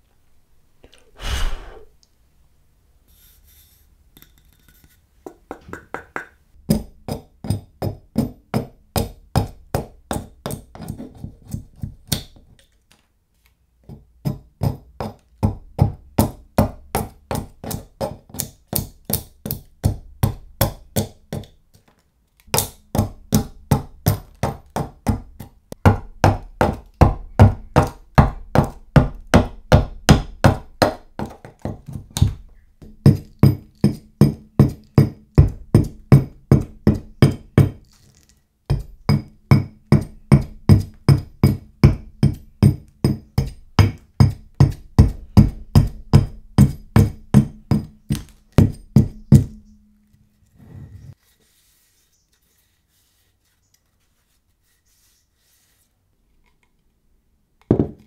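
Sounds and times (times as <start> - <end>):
hatchet chopping wood: 38.7 - 49.6.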